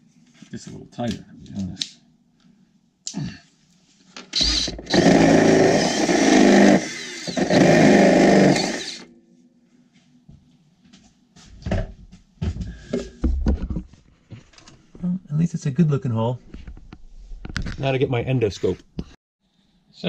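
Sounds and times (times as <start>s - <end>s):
cordless drill boring through metal: 4.4s - 9.1s.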